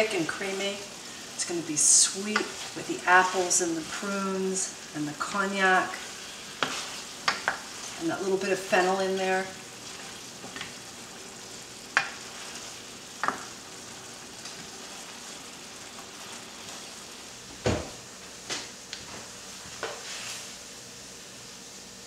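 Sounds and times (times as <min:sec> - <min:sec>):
cream sauce simmering and sizzling: 0:00.0 - 0:18.4
spoon knocking against pan: 0:06.6 - 0:07.6, 0:13.2 - 0:13.4.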